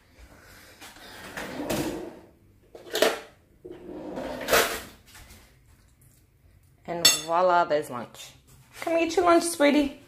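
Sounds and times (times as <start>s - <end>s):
drawer sliding: 1.1s - 4.9s.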